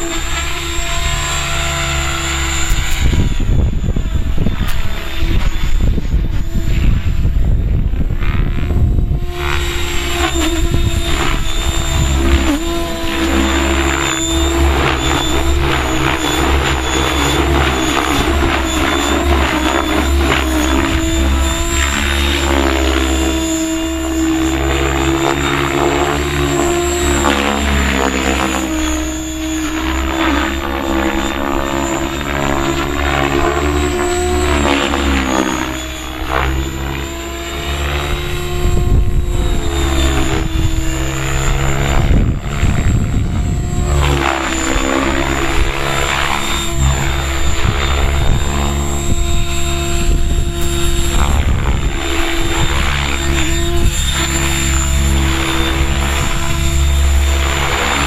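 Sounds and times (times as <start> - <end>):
rc helicopter motor whine: 0.0 - 58.0
wind buffeting microphone: 0.0 - 58.0.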